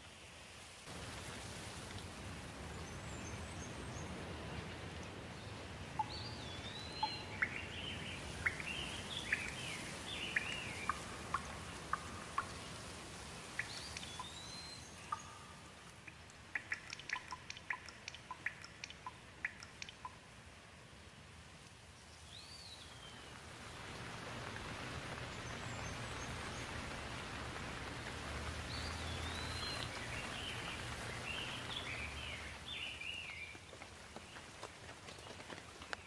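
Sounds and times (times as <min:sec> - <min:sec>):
steady rainfall: 0:00.0 - 0:36.0
birds calling: 0:06.0 - 0:12.7, 0:13.6 - 0:20.2, 0:24.3 - 0:33.5
water drops dripping: 0:06.0 - 0:12.7, 0:13.5 - 0:20.3, 0:25.4 - 0:33.8.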